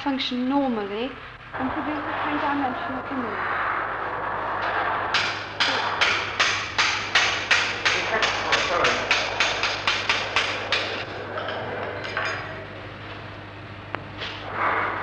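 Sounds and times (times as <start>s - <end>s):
low steady hum: 0.0s - 15.0s
sharp knocks: 4.6s - 11.0s.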